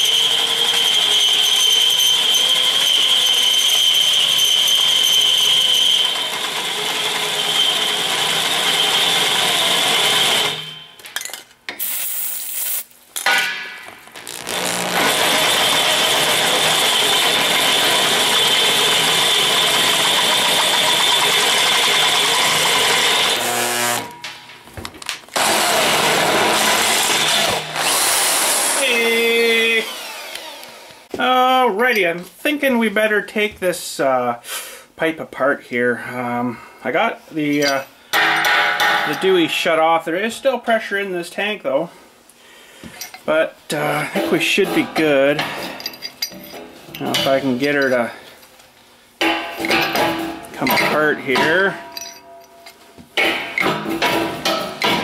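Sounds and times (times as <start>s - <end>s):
electric drill boring through steel: 0.0s - 10.8s, 14.2s - 24.1s, 25.4s - 31.0s.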